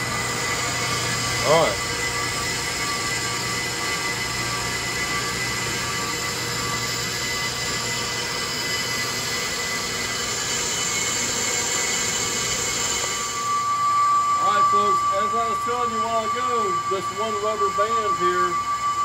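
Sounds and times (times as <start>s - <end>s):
lathe motor hum and whine: 0.0s - 19.0s.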